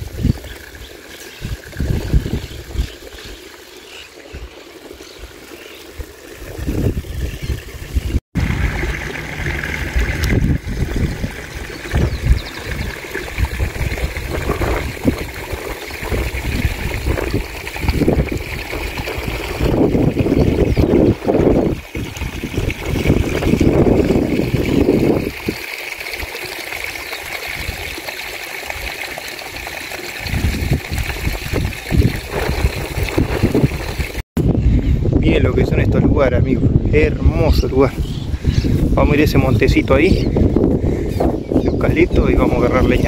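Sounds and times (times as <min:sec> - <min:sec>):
creek water trickling: 0:00.0 - 0:34.2
wind buffeting microphone: 0:01.4 - 0:03.3, 0:05.9 - 0:25.6, 0:30.2 - 0:43.0.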